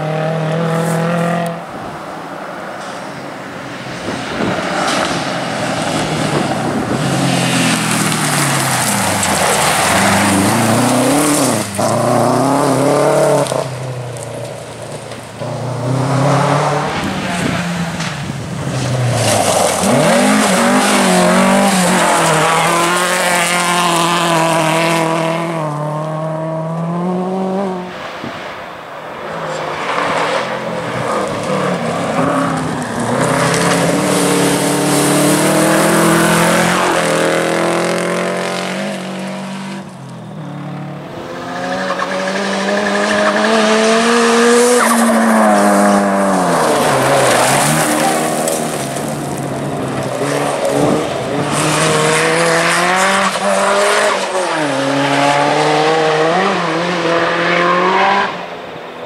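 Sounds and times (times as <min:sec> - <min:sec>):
rally car engines revving: 0:00.0 - 0:59.0
tyres scrabbling on gravel: 0:07.0 - 0:12.4, 0:44.8 - 0:51.4.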